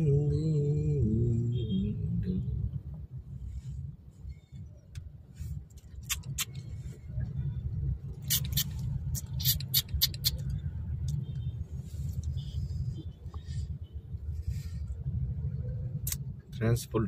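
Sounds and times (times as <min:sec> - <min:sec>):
short sharp high clicks: 0:06.0 - 0:06.6, 0:08.2 - 0:10.6.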